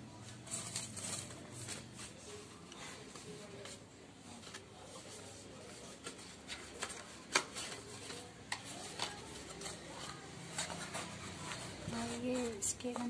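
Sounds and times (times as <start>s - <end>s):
hands rubbing packaging: 0.3s - 13.0s.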